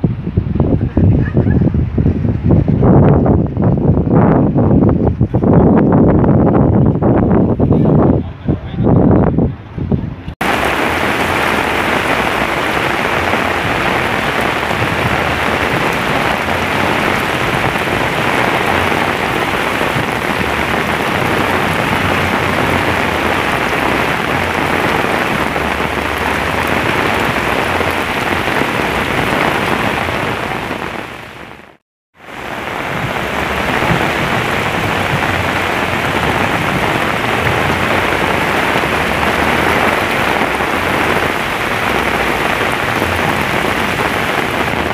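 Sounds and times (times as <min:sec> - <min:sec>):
torrential rain pouring: 0:10.3 - 0:44.9.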